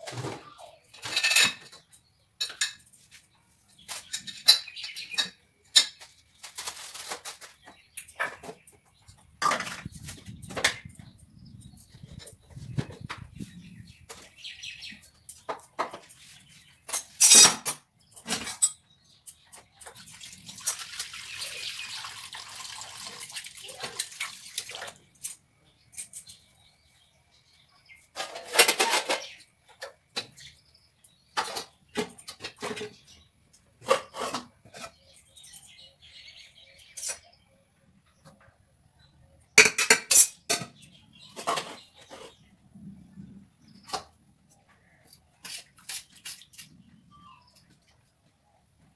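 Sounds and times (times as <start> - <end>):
pots and dishes clattering: 0.0 - 2.9, 16.9 - 18.8, 28.1 - 30.4, 33.8 - 35.1, 39.6 - 42.3.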